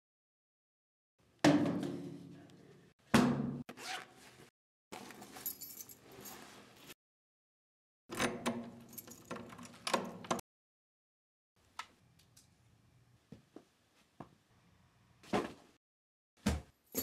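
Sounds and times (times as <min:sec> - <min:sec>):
keys jangling: 0:05.3 - 0:06.4, 0:08.8 - 0:09.9.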